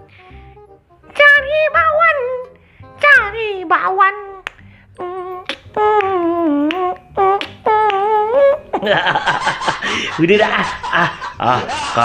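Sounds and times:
high-pitched voice singing: 5.0s - 8.6s
person laughing: 8.7s - 12.0s.

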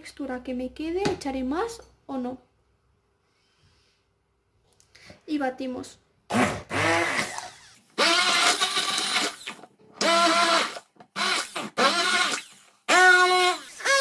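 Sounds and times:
immersion blender motor bursts: 6.3s - 14.0s.

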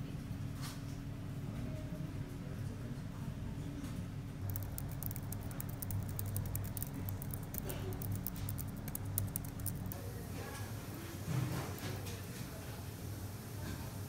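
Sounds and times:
low steady hum: 0.0s - 13.5s
fast typing on laptop keyboard: 4.5s - 10.0s.

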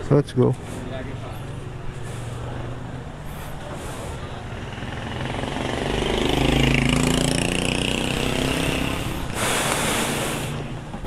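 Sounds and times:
vehicle engine running: 0.6s - 11.0s
short burst of hiss: 9.4s - 10.7s.

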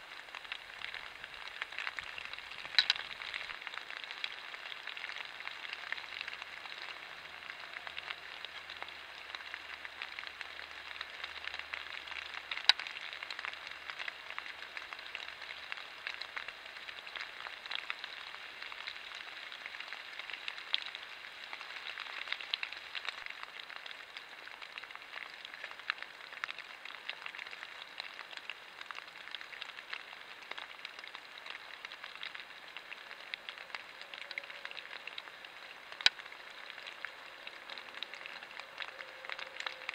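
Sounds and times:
light rain pattering on leaves: 0.0s - 39.9s.

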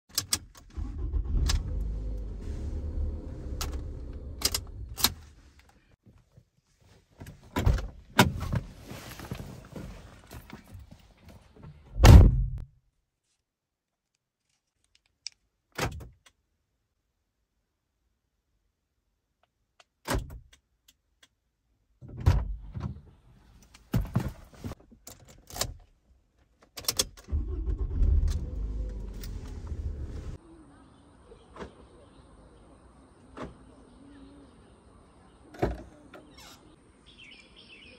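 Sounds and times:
car engine starting and running: 0.1s - 5.4s, 27.0s - 30.4s.

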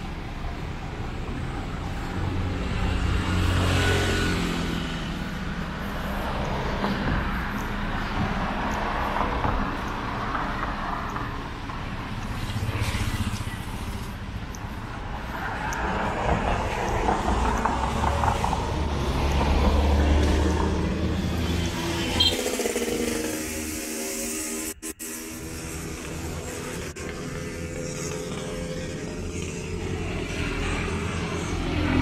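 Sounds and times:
motor vehicles driving past: 0.0s - 32.0s
heavy low engine rumble: 4.3s - 21.9s.

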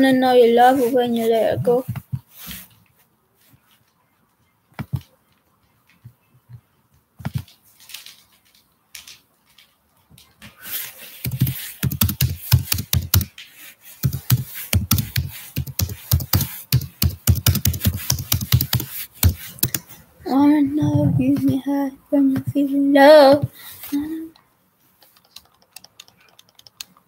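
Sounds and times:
sharp clicks and dull thumps: 14.0s - 19.8s.

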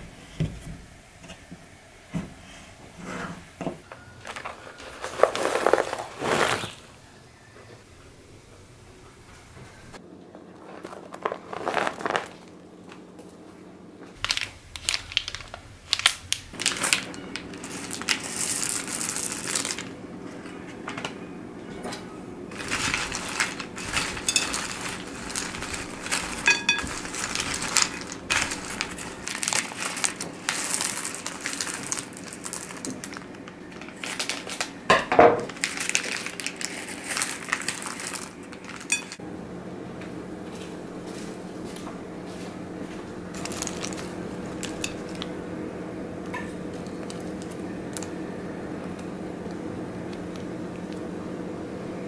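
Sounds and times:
snacks rustling in a bowl: 4.0s - 7.0s, 10.4s - 12.6s, 14.2s - 20.6s, 22.5s - 39.2s, 43.3s - 45.4s, 46.2s - 48.2s
candy bags crinkling: 4.2s - 7.0s, 10.4s - 12.6s, 14.2s - 20.4s, 22.5s - 39.2s, 43.3s - 45.4s, 46.2s - 48.2s.

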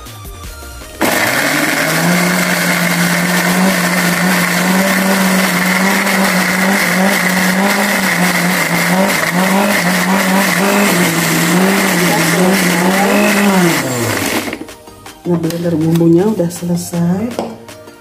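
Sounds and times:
electric blender motor humming: 1.0s - 14.8s.

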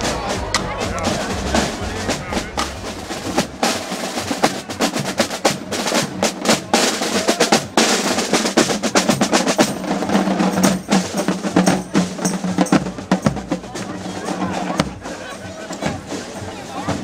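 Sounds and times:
bass drum: 0.0s - 7.8s
snare drum beats and rolls: 0.0s - 17.0s.

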